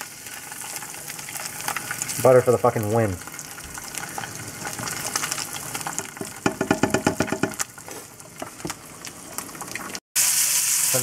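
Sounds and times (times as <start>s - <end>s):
eggs sizzling in a pan: 0.0s - 11.0s.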